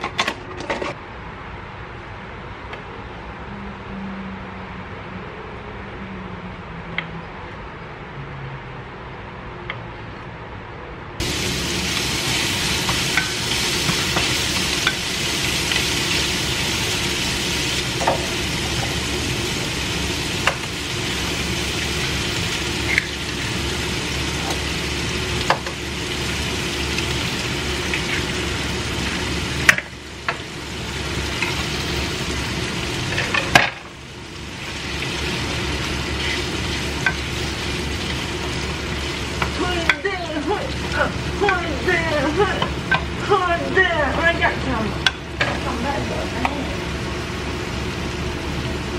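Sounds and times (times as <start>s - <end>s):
food sizzling in a frying pan: 11.2s - 48.9s.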